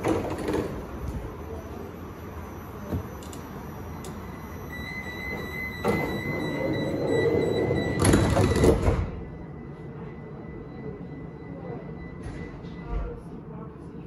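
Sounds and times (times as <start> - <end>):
steady high warning beep: 1.0 - 14.0
train sliding door closing: 4.8 - 9.2.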